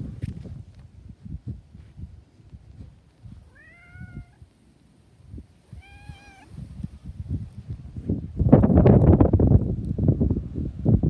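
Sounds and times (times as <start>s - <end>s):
cat meowing: 3.5s - 4.4s, 5.7s - 6.6s.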